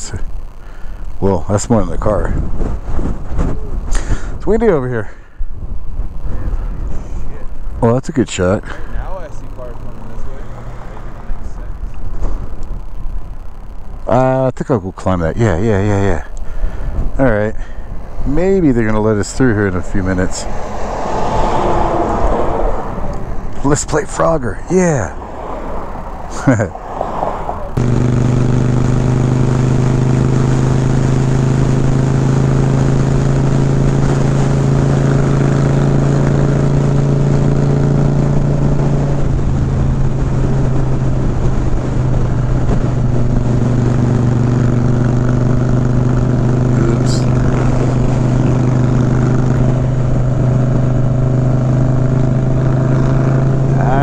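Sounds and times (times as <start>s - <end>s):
motorcycle engine cruising: 0.0s - 54.0s
wind rushing: 2.2s - 4.4s, 19.6s - 23.6s.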